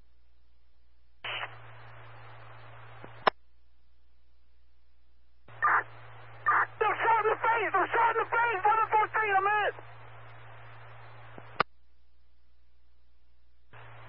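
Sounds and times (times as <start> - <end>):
low hum: 0.0 - 14.0
radio click: 1.2 - 3.4, 10.8 - 11.7
radio static hiss: 1.2 - 3.4, 5.5 - 11.8, 13.7 - 14.0.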